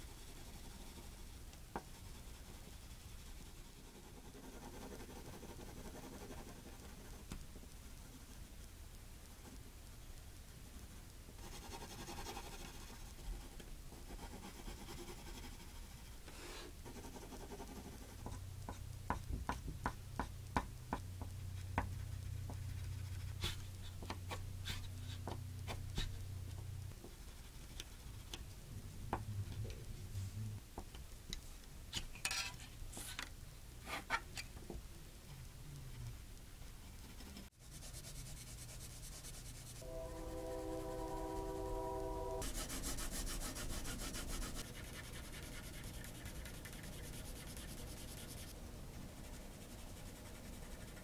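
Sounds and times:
pencil scratching on paper: 0:00.0 - 0:07.2, 0:11.4 - 0:16.2, 0:16.8 - 0:18.8, 0:42.4 - 0:51.0
low steady hum: 0:00.0 - 0:51.0.

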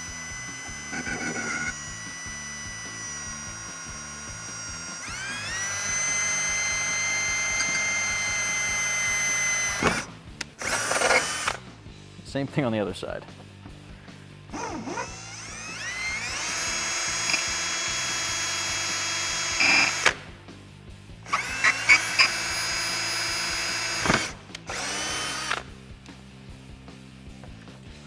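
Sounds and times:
cordless drill whining: 0:00.0 - 0:11.6, 0:14.5 - 0:20.2, 0:21.2 - 0:25.7
drill bit cutting plastic: 0:00.0 - 0:11.6, 0:14.5 - 0:20.2, 0:21.3 - 0:25.7.

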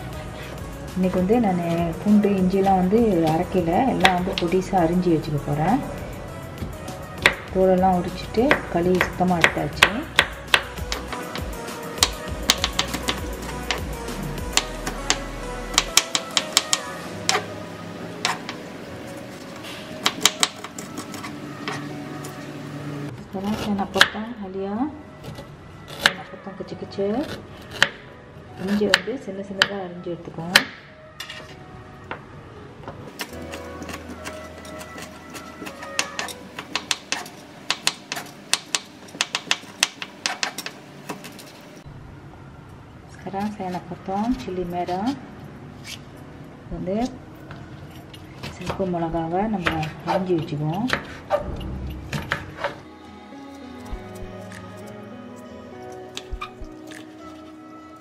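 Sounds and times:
background music: 0:00.0 - 0:40.4, 0:41.8 - 0:58.0.

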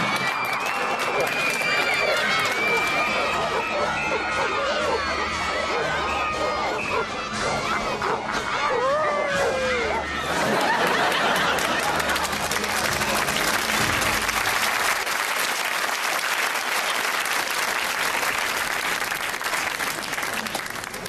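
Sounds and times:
audience applauding: 0:00.0 - 0:04.3, 0:10.2 - 0:21.0.

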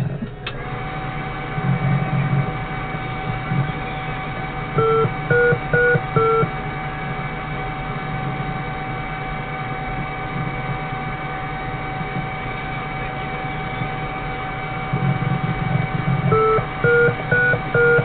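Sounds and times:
steady electrical hum: 0:00.0 - 0:18.0
thin electronic whine: 0:00.0 - 0:18.0
short electronic beeps: 0:04.8 - 0:06.5, 0:16.4 - 0:18.0.

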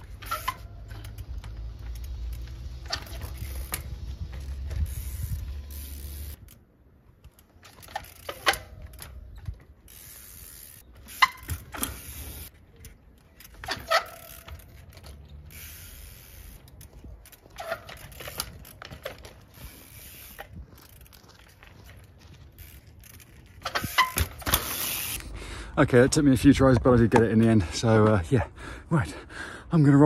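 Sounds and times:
bike clanking on rails: 0:00.0 - 0:06.4, 0:07.2 - 0:25.2.

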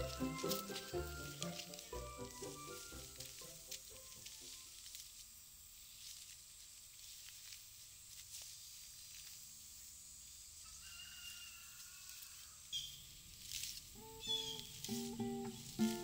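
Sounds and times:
acoustic guitar music: 0:00.0 - 0:04.3, 0:14.0 - 0:16.0
plants rustling and snapping: 0:00.0 - 0:09.6, 0:13.3 - 0:16.0
distant bird call: 0:14.0 - 0:16.0.

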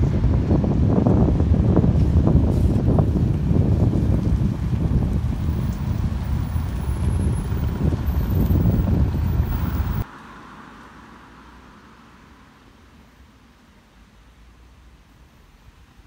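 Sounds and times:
wind buffeting microphone: 0:00.0 - 0:10.0
bus driving away: 0:00.0 - 0:16.0.

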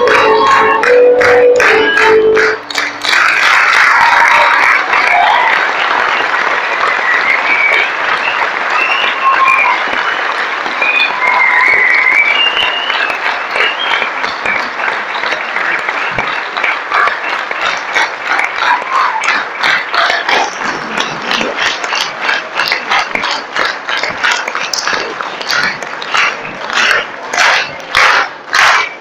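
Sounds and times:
audience applauding: 0:00.0 - 0:29.0
single sharp claps: 0:06.2 - 0:29.0.

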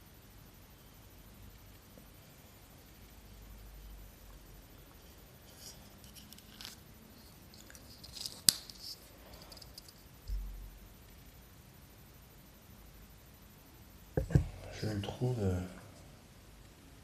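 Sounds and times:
dull handling thump: 0:14.2 - 0:14.6.

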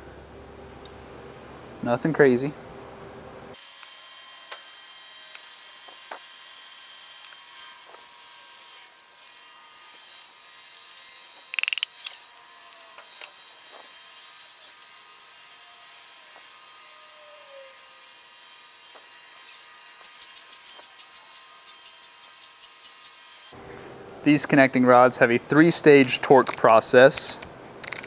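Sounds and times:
hand ratchet clicking: 0:11.5 - 0:12.9.

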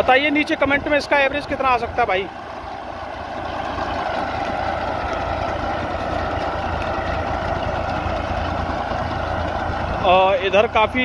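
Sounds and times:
tractor engine running under load: 0:00.0 - 0:11.0.

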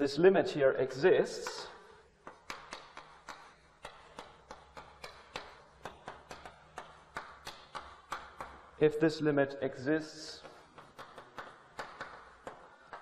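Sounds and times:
chalk tapping on blackboard: 0:01.4 - 0:08.8, 0:10.3 - 0:13.0.

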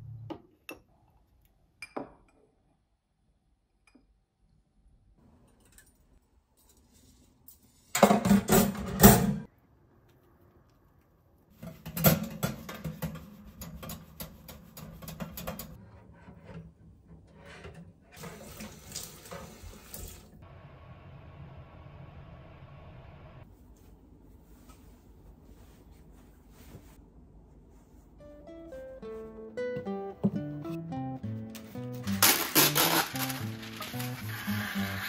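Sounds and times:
tap water running into sink: 0:18.2 - 0:20.4.

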